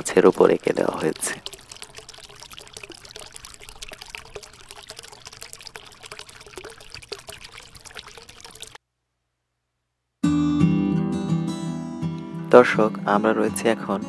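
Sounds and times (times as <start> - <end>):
water trickling into a pond: 0.0 - 8.8.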